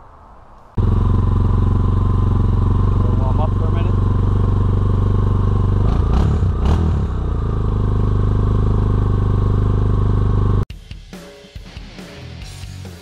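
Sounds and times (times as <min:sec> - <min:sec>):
quad engine idling: 0:00.8 - 0:10.6.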